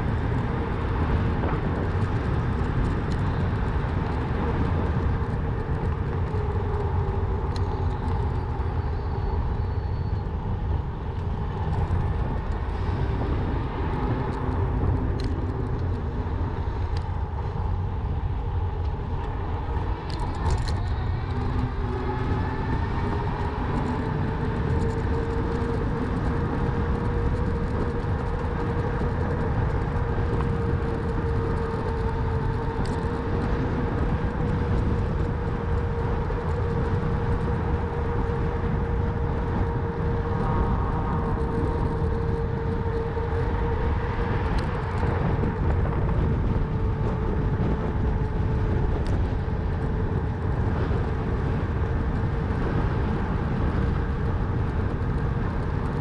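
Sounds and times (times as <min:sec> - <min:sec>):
wind and rolling noise: 0:00.0 - 0:56.0
small clicks and rattles: 0:18.8 - 0:40.0, 0:40.6 - 0:49.8.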